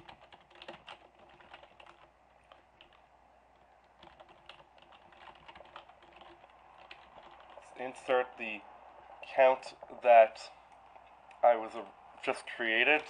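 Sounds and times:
faint keyboard typing: 0.0 - 10.0, 12.2 - 13.0.

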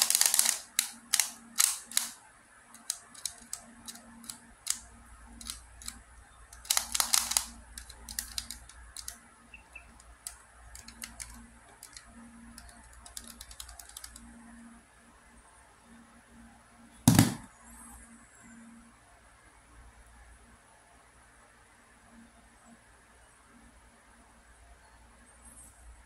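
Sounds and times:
plastic puzzle clicking: 0.0 - 4.8, 5.4 - 6.0, 6.6 - 9.2, 10.0 - 14.2.

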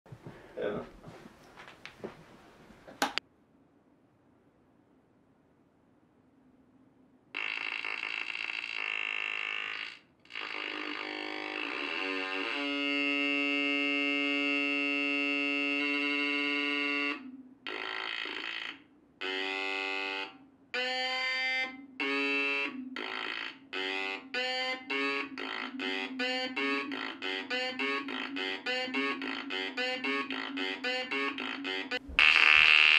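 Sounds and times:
buzzy square-wave synth tones: 7.3 - 32.9.

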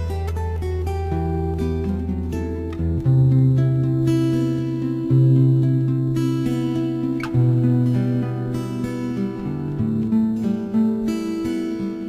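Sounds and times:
plucked acoustic guitar music: 0.0 - 12.0.

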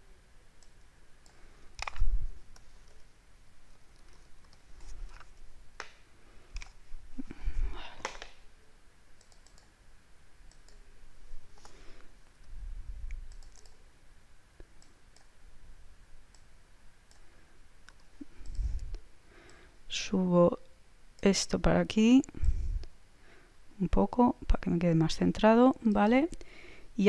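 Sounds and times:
computer mouse clicks: 0.6 - 3.1, 3.9 - 6.0, 6.6 - 6.8, 9.2 - 9.8, 10.5 - 10.8, 11.6 - 13.8, 14.6 - 15.3, 17.1 - 19.6
keystrokes: 0.6 - 3.1, 9.2 - 9.8, 10.5 - 10.8, 13.2 - 13.8.

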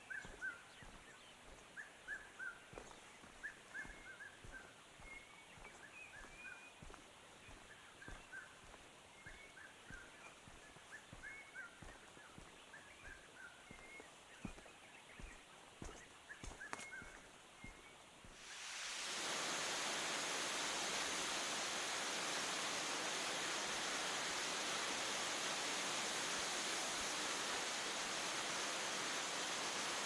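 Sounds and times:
footsteps on dirt path: 0.0 - 18.4
faint birdsong chirping: 0.0 - 18.5.

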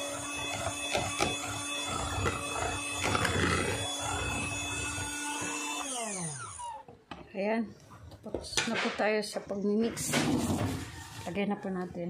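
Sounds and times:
electric hand mixer running: 0.0 - 7.0.

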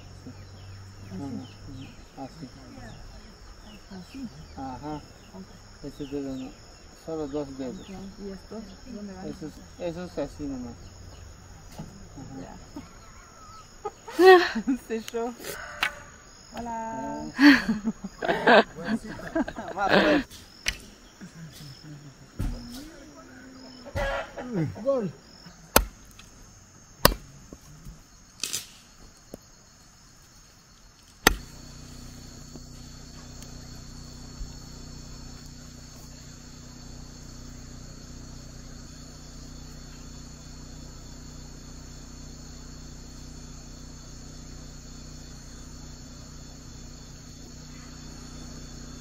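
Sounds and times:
crickets and insects chirping: 0.0 - 49.0
machete chopping wood: 20.6 - 20.9, 25.7 - 26.3, 27.0 - 28.8, 31.2 - 31.7.

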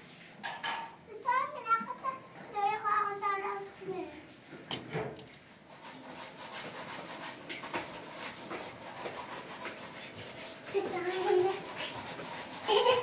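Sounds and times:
dishes scrubbed by hand: 5.5 - 13.0.

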